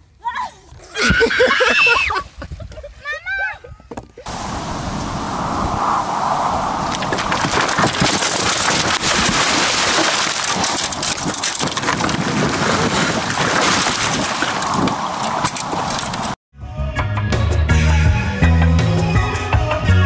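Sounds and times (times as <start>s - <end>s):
wind buffeting microphone: 2.2s - 3.0s, 3.6s - 16.4s.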